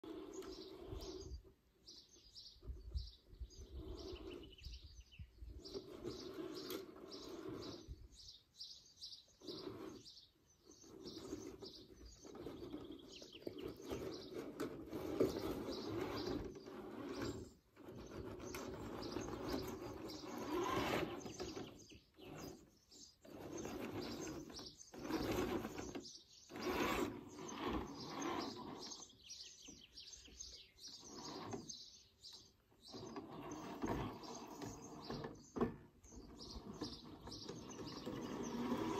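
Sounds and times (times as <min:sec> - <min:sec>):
electric motor whining: 0:19.2 - 0:21.7, 0:23.4 - 0:29.0.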